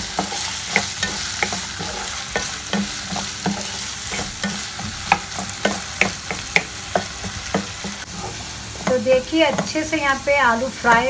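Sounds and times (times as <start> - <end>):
potatoes sizzling in pan: 0.0 - 11.0
wooden spatula scraping pan: 0.1 - 10.0.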